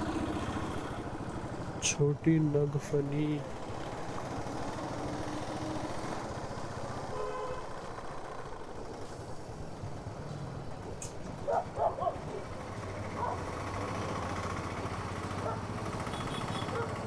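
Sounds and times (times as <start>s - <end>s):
motorcycle engine running: 0.0s - 2.0s, 3.4s - 17.0s
faint traffic tone: 10.0s - 17.0s.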